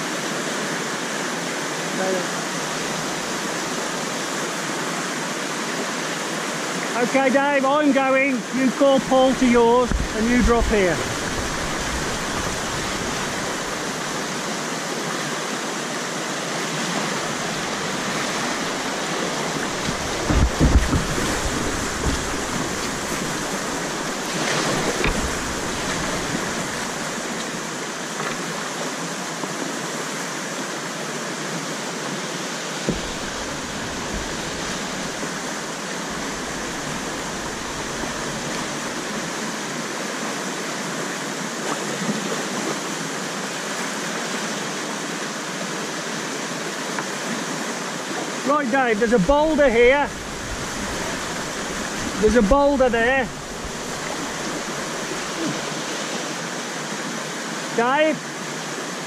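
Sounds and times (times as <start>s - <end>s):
whitewater rushing: 0.0s - 59.0s
low thuds: 9.8s - 13.8s, 17.5s - 27.1s, 32.8s - 39.2s.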